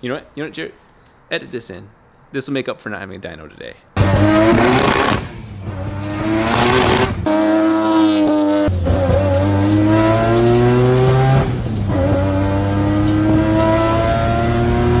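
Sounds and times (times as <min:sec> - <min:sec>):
rotary engine pulling hard: 0:04.0 - 0:15.0.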